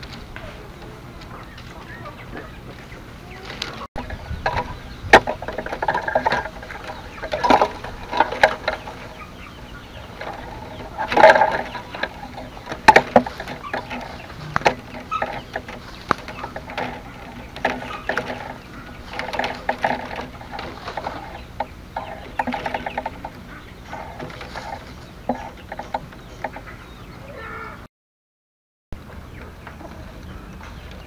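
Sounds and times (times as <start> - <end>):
bamboo strips clicking and scraping: 3.4 - 26.8.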